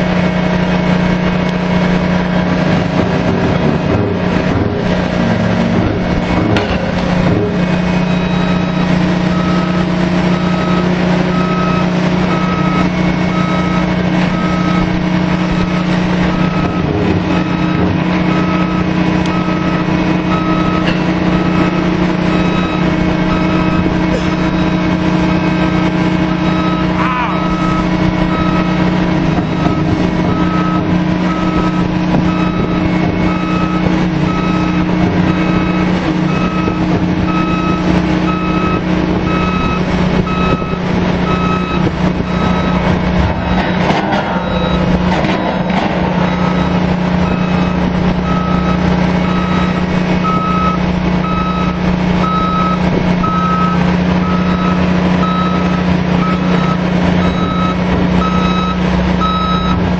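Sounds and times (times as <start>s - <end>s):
rig machinery drone: 0.0s - 59.9s
warning beeps: 5.5s - 14.9s, 26.3s - 43.8s, 44.4s - 45.5s, 46.3s - 59.8s
clatter: 5.7s - 7.6s, 43.2s - 46.1s.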